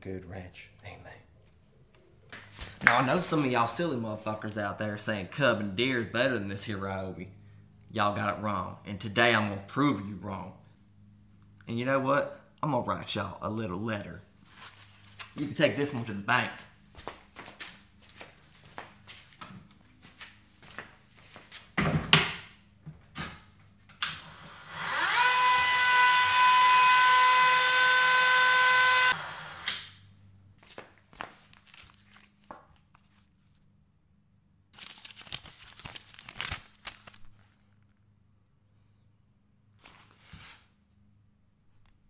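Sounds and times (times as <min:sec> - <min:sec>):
footsteps: 0:14.4 - 0:21.8
small electric motor whining: 0:24.2 - 0:29.8
paper rustling: 0:30.6 - 0:33.6, 0:34.8 - 0:37.9, 0:39.8 - 0:40.7.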